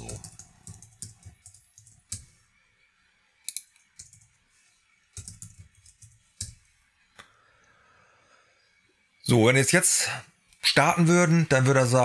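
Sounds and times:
typing on a keyboard: 0:00.0 - 0:02.3, 0:03.5 - 0:04.3, 0:05.1 - 0:06.6.

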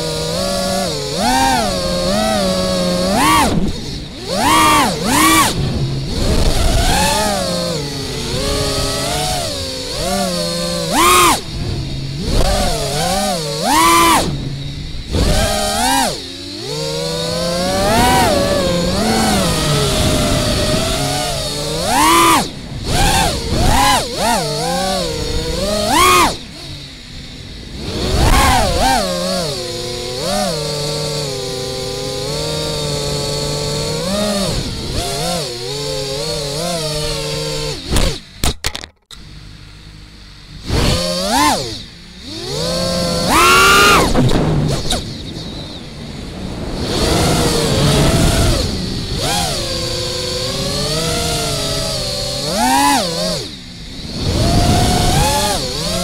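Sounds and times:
quadcopter motors whining: 0:00.0 - 0:56.0.

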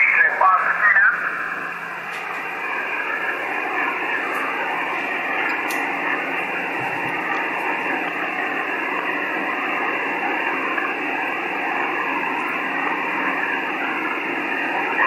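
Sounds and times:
garbled radio voices: 0:00.0 - 0:08.0, 0:12.8 - 0:15.0.

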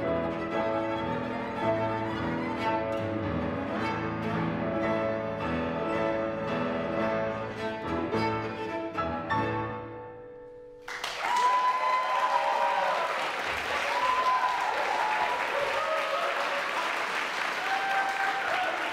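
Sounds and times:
cello and piano: 0:00.0 - 0:10.6
audience applause and cheers: 0:10.8 - 0:18.9.

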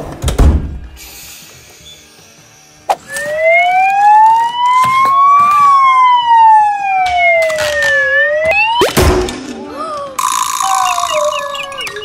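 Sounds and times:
fire truck siren wail: 0:03.1 - 0:08.9, 0:10.6 - 0:12.0.

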